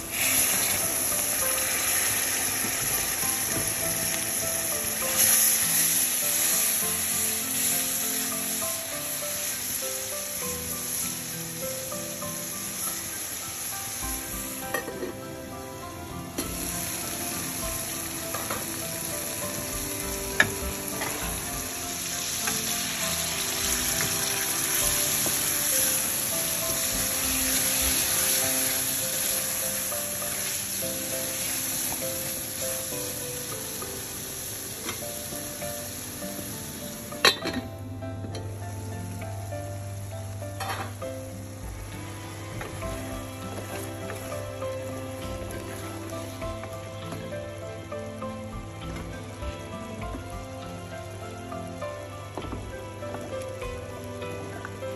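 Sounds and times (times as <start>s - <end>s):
prawns sizzling in a pot: 0.0s - 54.9s
metal lid clanking onto pot: 37.2s - 37.7s, 40.6s - 40.9s.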